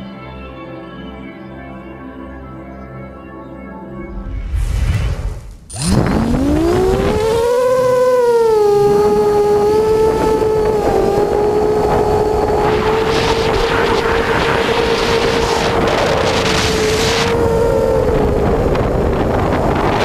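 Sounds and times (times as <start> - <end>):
quadcopter motors whining: 5.7 - 20.0.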